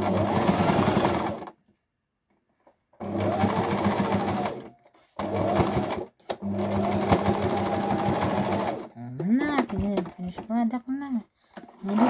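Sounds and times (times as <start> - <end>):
sewing machine stitching: 0.0 - 1.6, 3.0 - 8.9, 11.8 - 12.0.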